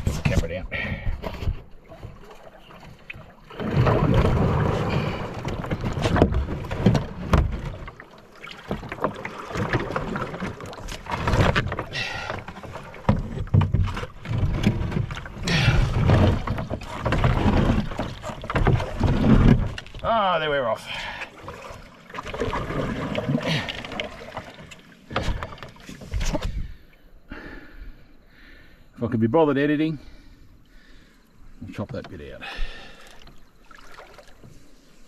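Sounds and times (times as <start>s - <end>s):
canoe hull scraping over rocks: 0.0s - 26.8s.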